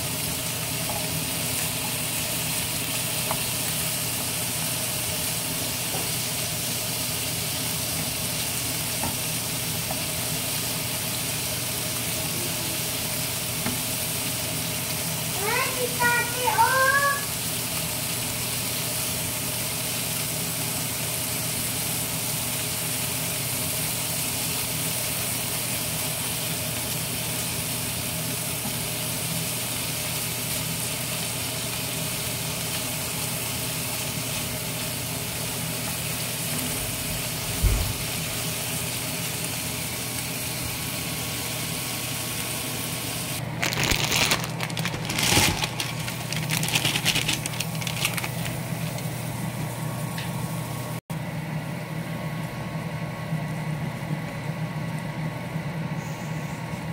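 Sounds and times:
shrimp sizzling in a frying pan: 0.0 - 51.0
plastic packet crinkling: 43.4 - 49.1.

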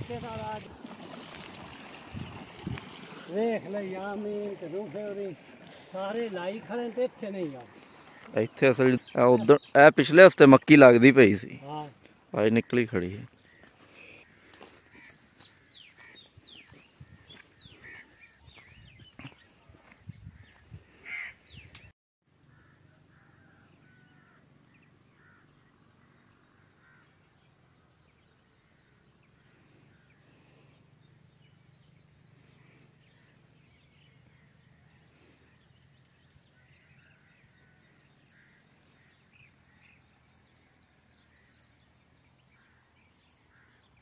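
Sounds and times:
crow cawing: 14.3 - 16.3, 21.0 - 21.4, 22.5 - 24.6, 25.2 - 25.6, 26.8 - 27.2.

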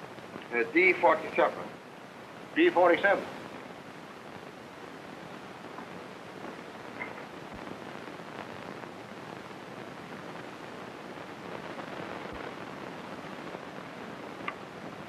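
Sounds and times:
film soundtrack hiss and crackle: 0.0 - 15.0
faint clicks: 14.4 - 14.7.

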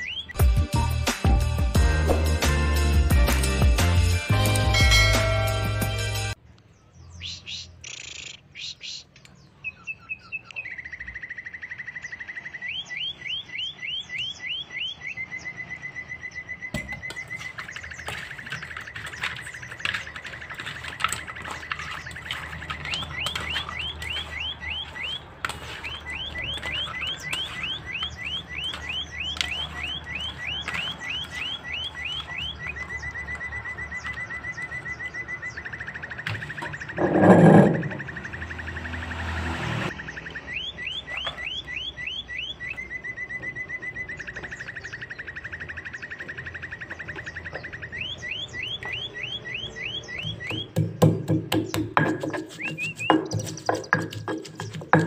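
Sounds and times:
bird trilling and chirping: 0.0 - 0.5, 6.6 - 55.0
hands squelching fish in bowl: 17.0 - 33.4, 51.5 - 55.0.

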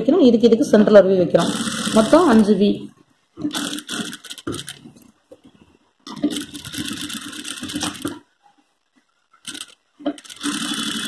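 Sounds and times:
sewing machine stitching: 1.4 - 2.5, 3.4 - 4.9, 6.1 - 8.2, 9.4 - 11.0.

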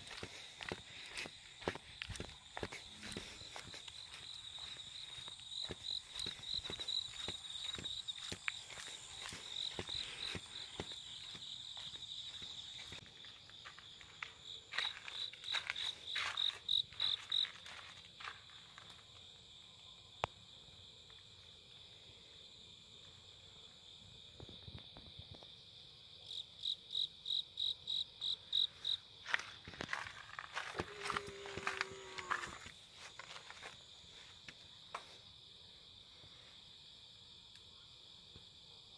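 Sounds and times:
light footsteps: 0.0 - 19.0, 29.2 - 35.2
crickets trilling: 0.0 - 38.9.

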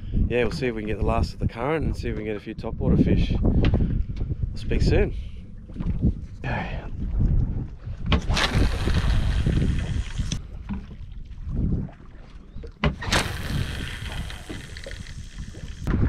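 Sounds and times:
wind buffeting microphone: 0.0 - 16.0
fishing line running off reel: 8.3 - 10.4, 13.0 - 15.9.

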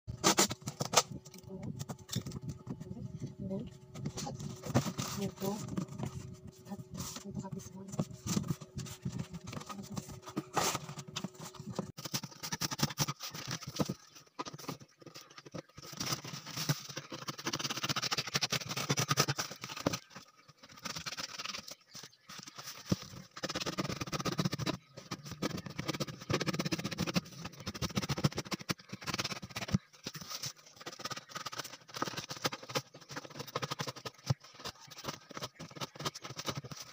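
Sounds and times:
cardboard boxes scraping and rustling: 4.0 - 20.1.

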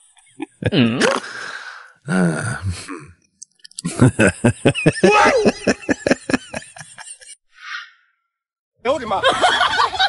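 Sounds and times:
person laughing: 0.4 - 1.2, 3.8 - 7.4
person crying out: 5.0 - 5.7.

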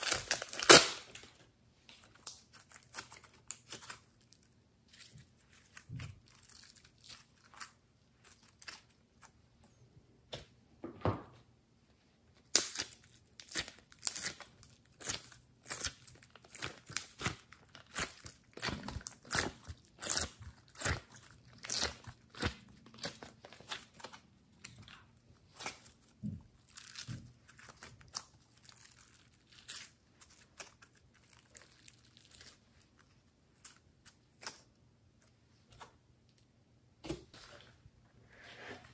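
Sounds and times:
slime crackling and popping: 12.4 - 24.0.

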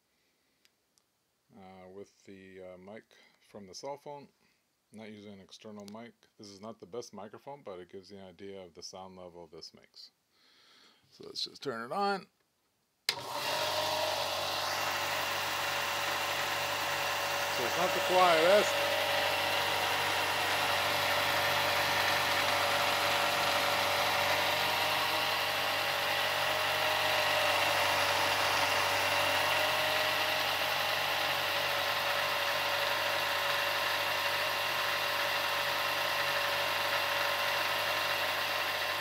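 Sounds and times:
belt and disc sander running: 13.1 - 39.0.

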